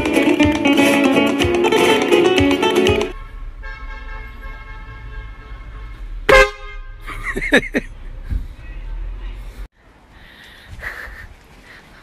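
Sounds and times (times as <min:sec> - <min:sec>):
acoustic guitar strumming: 0:00.0 - 0:03.2.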